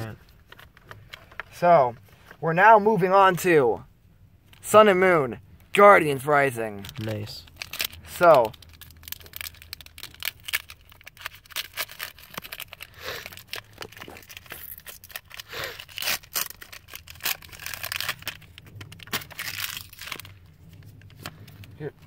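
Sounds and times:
foil pack tearing and crinkling: 0:06.8 - 0:21.6.

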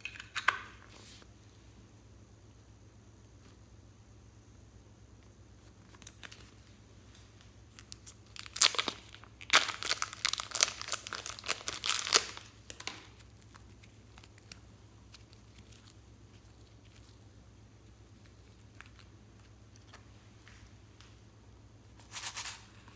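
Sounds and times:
dense crinkling and crackling: 0:05.6 - 0:21.2.

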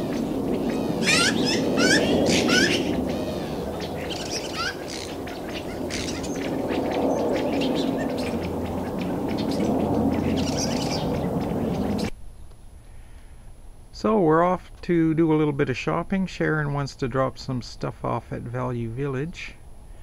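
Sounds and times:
small birds chirping: 0:00.0 - 0:12.6
steady low rumble: 0:00.0 - 0:20.0.

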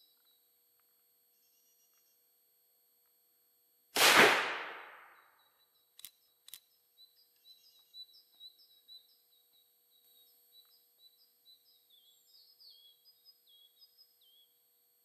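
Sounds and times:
revolver gunshot: 0:04.0 - 0:05.2
small birds chirping: 0:05.4 - 0:14.6.

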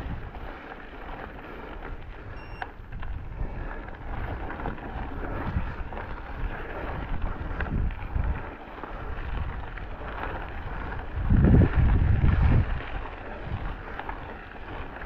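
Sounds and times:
bike rattling on rough trail: 0:00.0 - 0:15.0
wind buffeting microphone: 0:00.0 - 0:15.0
brief high-pitched tone: 0:02.4 - 0:02.6.

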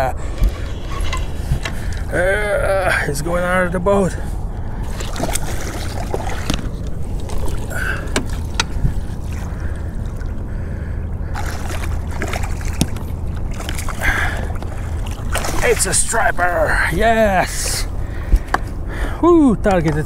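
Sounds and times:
wind and water rumble: 0:00.0 - 0:20.0
fish splashing at surface: 0:04.9 - 0:09.8, 0:11.3 - 0:15.8.

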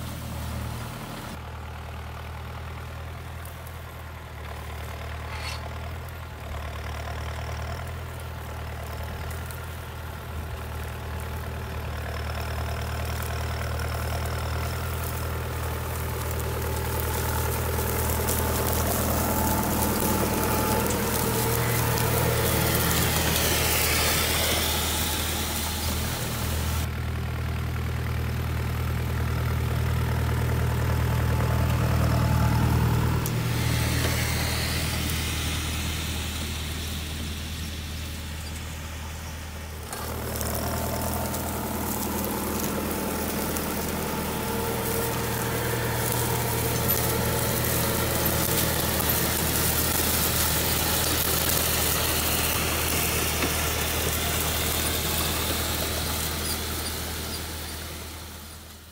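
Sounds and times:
tractor diesel engine running: 0:00.0 - 0:58.9
crackle of dry plant residue: 0:04.5 - 0:26.9, 0:39.8 - 0:58.9.

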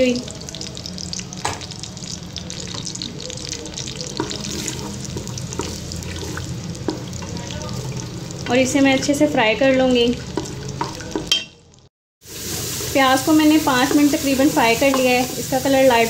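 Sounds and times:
onions sizzling in oil: 0:00.0 - 0:16.0
wooden spoon stirring: 0:02.6 - 0:09.0, 0:09.9 - 0:11.4.

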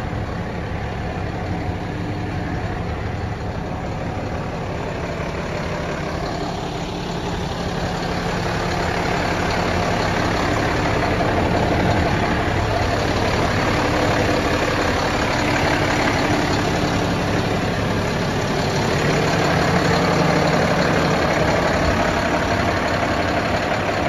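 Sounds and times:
diesel engine idling: 0:00.0 - 0:24.0.

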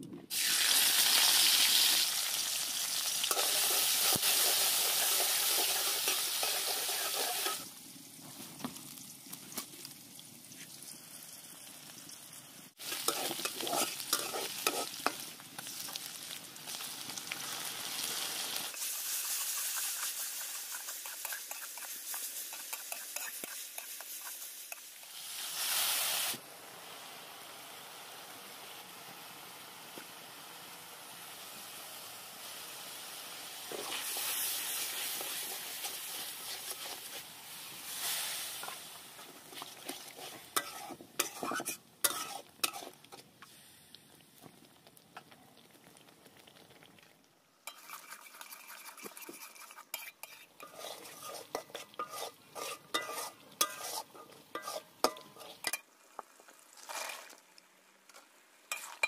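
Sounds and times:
paste sizzling in hot oil: 0:00.3 - 0:59.0
metal spatula scraping a wok: 0:03.2 - 0:07.7, 0:12.8 - 0:16.0, 0:18.7 - 0:26.3, 0:33.7 - 0:43.2, 0:47.6 - 0:55.9, 0:58.7 - 0:59.0
spatula clinking on metal: 0:49.9 - 0:55.8.

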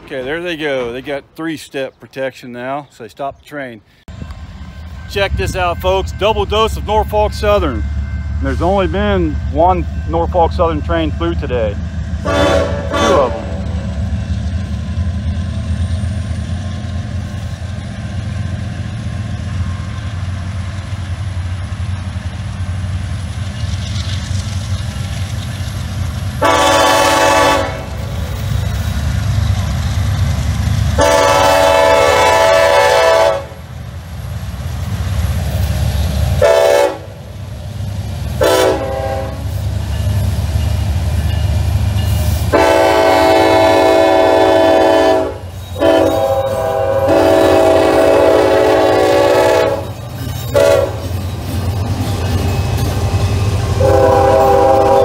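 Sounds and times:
diesel locomotive engine rumble: 0:00.0 - 0:55.0
train air horn: 0:12.2 - 0:13.8, 0:26.4 - 0:28.0, 0:31.0 - 0:33.6, 0:36.4 - 0:37.2, 0:38.4 - 0:39.5, 0:42.5 - 0:51.1, 0:53.8 - 0:55.0.

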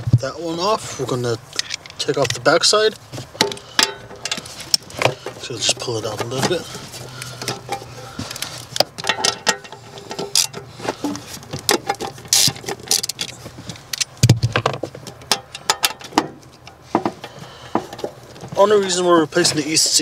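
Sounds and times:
clicks and rattles of plastic connectors: 0:06.1 - 0:16.8.

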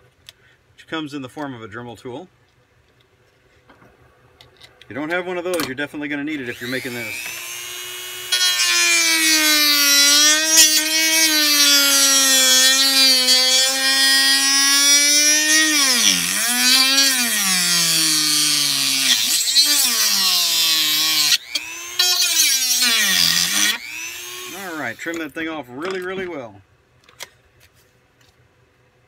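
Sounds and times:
rotary tool cutting metal: 0:06.4 - 0:25.2.

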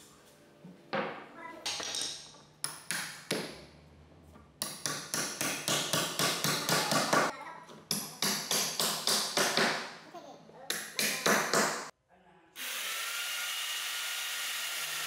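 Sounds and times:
hammer strikes: 0:01.0 - 0:03.7, 0:04.6 - 0:10.0.

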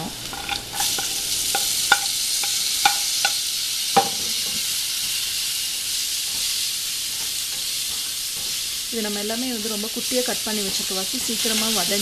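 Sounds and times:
onion sizzling in hot oil: 0:00.0 - 0:12.0.

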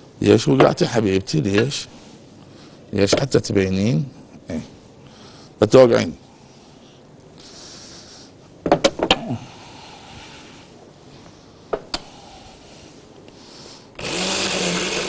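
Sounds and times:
electric blender whirring: 0:14.0 - 0:15.0.

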